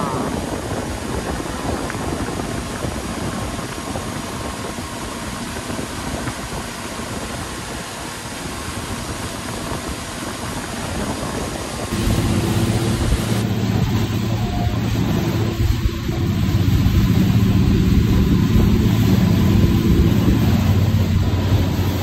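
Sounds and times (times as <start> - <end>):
rushing water noise: 0.0 - 22.0
boat engine running: 8.7 - 22.0
low hum: 11.9 - 22.0.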